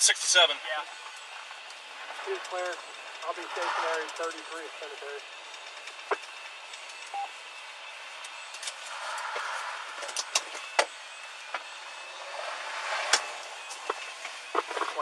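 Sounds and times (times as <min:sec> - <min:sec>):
passing traffic: 0:00.0 - 0:15.0
car cabin noise: 0:08.2 - 0:15.0.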